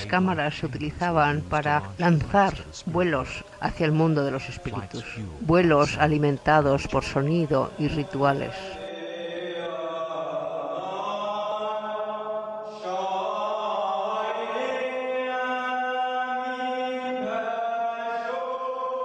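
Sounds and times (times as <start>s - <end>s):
low steady drone: 0.0s - 8.8s.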